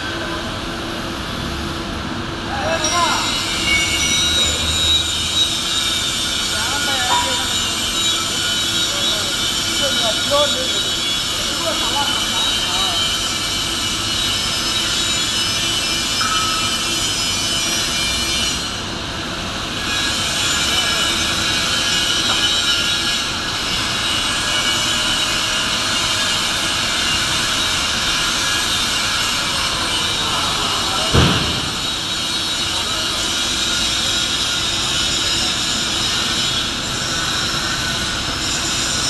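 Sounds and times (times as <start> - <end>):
industrial machinery rumble and hiss: 0.0 - 39.0.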